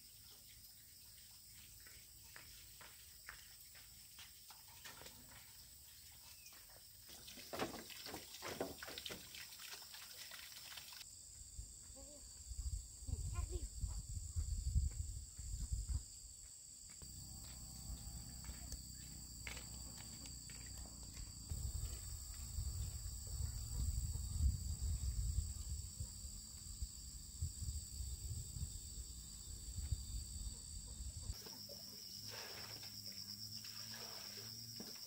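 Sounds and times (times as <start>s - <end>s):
insects droning: 0.0s - 35.0s.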